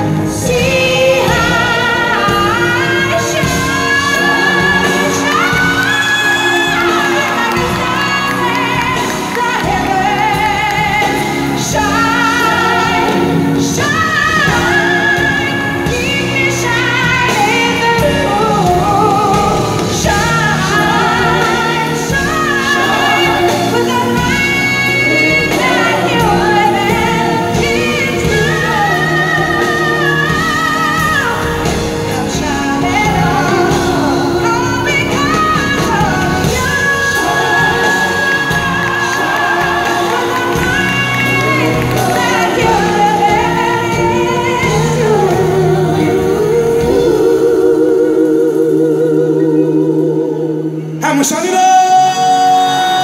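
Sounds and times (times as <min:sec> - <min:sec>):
band with piano: 0:00.0 - 0:53.0
voices singing with vibrato: 0:00.0 - 0:53.0.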